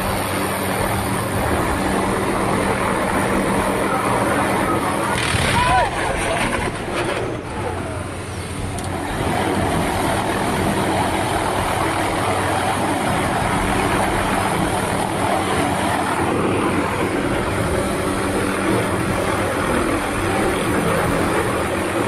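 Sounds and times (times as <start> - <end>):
helicopter engine and rotor: 0.0 - 22.0.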